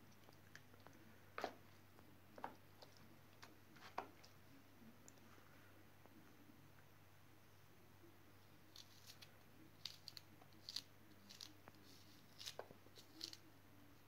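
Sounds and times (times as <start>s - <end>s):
knife cutting vegetable: 8.8s - 13.4s.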